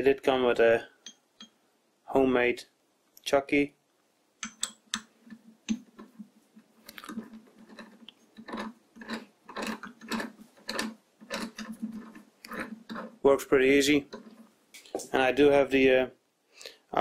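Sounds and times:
lathe chuck clicking: 7.1 - 13.1.

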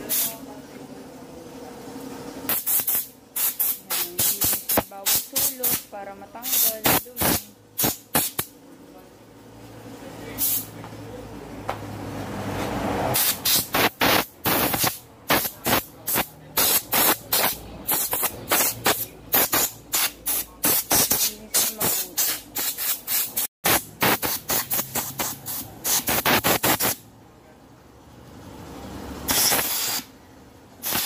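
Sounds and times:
air blow gun hissing blasts: 2.5 - 8.5, 10.4 - 10.7, 13.1 - 27.0, 29.2 - 30.1, 30.8 - 31.0.

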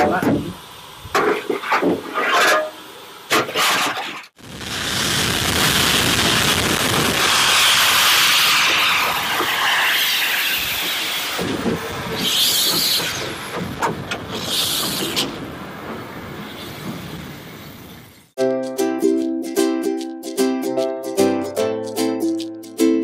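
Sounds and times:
steam locomotive hissing: 4.7 - 18.3.

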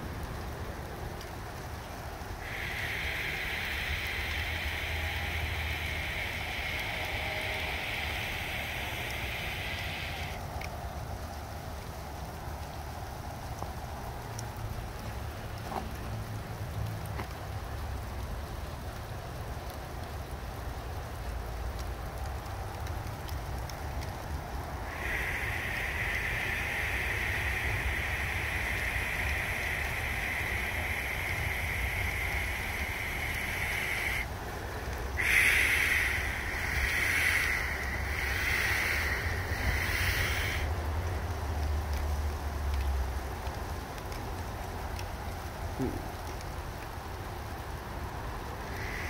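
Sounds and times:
low steady rumble: 0.0 - 19.7, 20.3 - 49.0
sleet and rain pattering: 0.0 - 49.0
ice pellets ticking: 1.2 - 11.4, 21.3 - 49.0.

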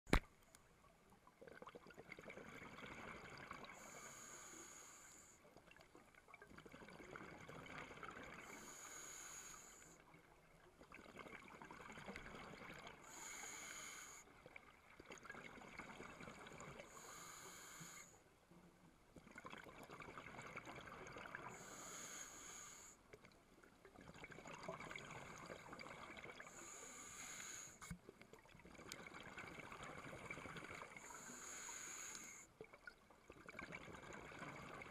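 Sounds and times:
diver inhaling through regulator: 3.7 - 5.4, 8.4 - 10.0, 13.0 - 14.3, 16.8 - 18.2, 21.5 - 23.0, 26.4 - 28.0, 31.0 - 32.5.

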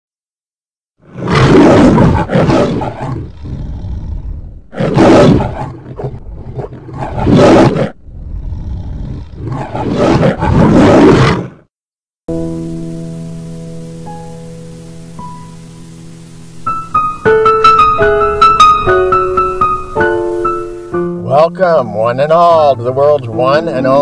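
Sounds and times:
lion roaring: 1.0 - 11.6
sustained music: 12.3 - 24.0.

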